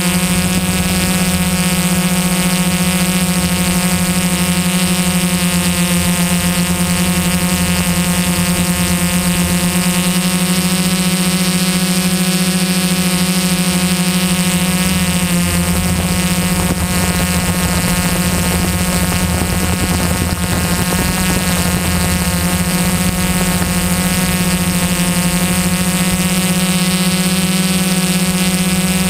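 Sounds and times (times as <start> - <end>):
drone motors humming: 0.0 - 29.0.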